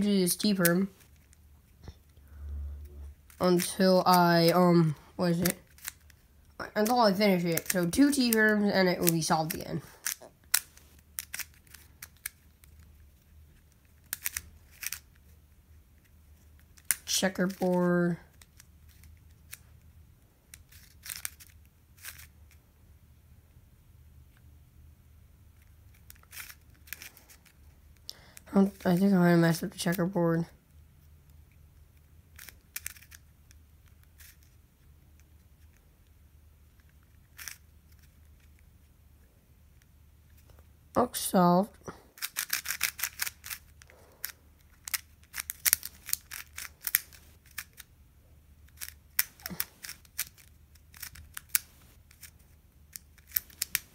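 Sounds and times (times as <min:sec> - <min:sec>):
low steady hum: 0:00.0 - 0:53.9
plastic puzzle cube clicking: 0:05.3 - 0:15.3, 0:16.0 - 0:17.7, 0:18.3 - 0:19.7, 0:20.5 - 0:22.6, 0:25.6 - 0:28.8, 0:31.3 - 0:34.6, 0:35.2 - 0:38.7, 0:42.2 - 0:47.9, 0:48.6 - 0:53.9.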